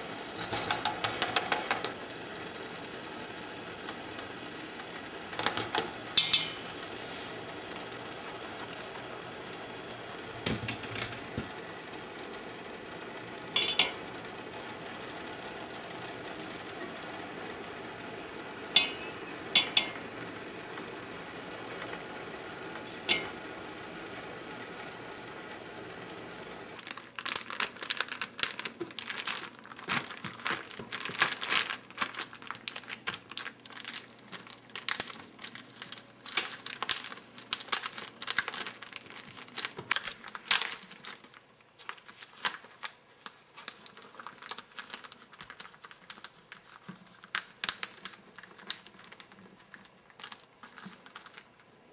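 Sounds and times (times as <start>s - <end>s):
water boiling in a pot: 0.0s - 41.8s
metal strainer clinking on pot: 6.2s - 6.6s, 13.6s - 14.0s, 18.8s - 20.0s, 23.1s - 23.3s
plastic bag crinkling: 26.8s - 51.7s.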